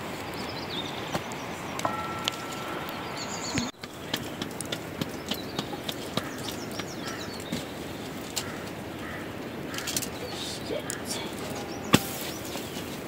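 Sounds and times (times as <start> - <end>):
outdoor background noise: 0.0 - 13.0
high chirping: 0.5 - 3.8, 10.1 - 12.9.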